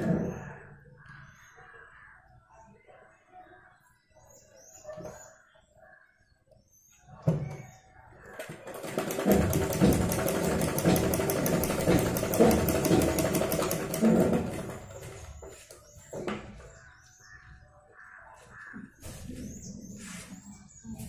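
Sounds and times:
birds calling: 0.0s - 21.0s
sewing machine stitching: 8.4s - 15.6s.

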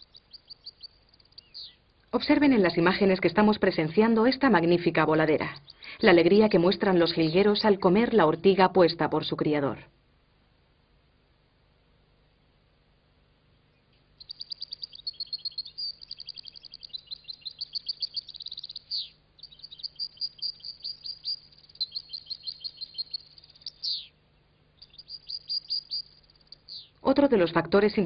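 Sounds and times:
goldfinch twittering song: 0.0s - 1.8s, 2.4s - 8.0s, 14.2s - 27.1s.

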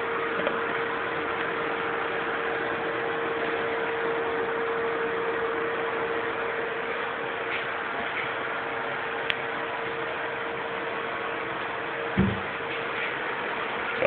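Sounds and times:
mid-pitched hum: 0.0s - 14.0s.

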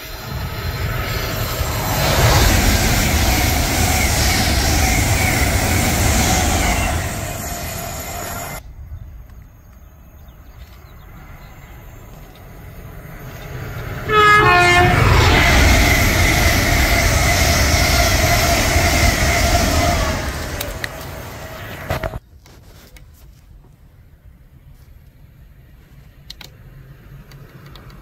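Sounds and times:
train wheels squealing: 0.0s - 8.6s, 14.8s - 22.2s
train rumbling past: 0.0s - 22.2s
train horn: 3.3s - 8.6s, 13.9s - 22.2s.

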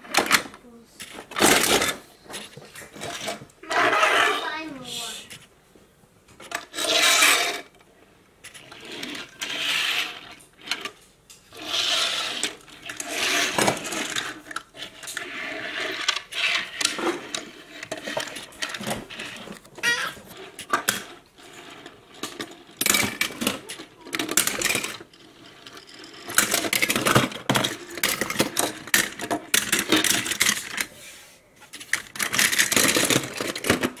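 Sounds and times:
metal toy cars clinking: 6.4s - 7.7s, 8.4s - 30.9s, 31.7s - 34.0s.

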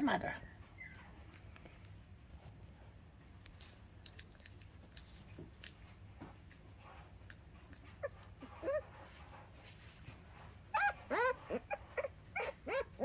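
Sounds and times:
puppy whining: 0.3s - 2.0s, 7.2s - 9.4s, 10.4s - 13.0s.

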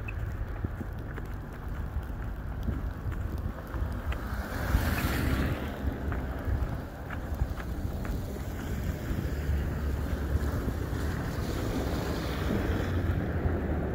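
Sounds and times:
wind rumbling on microphone: 0.0s - 13.9s
tyres hissing through wet snow: 3.8s - 13.9s.

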